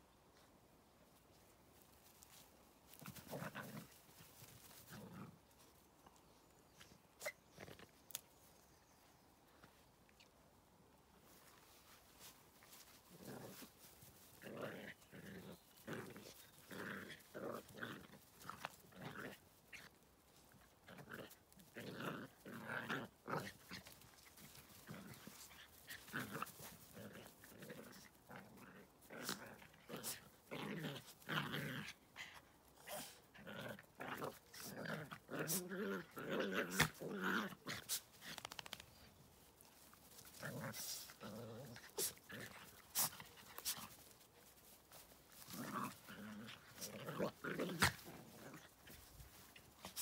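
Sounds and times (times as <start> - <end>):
puppies growling: 33.0 - 38.8, 40.1 - 44.3, 44.9 - 50.0.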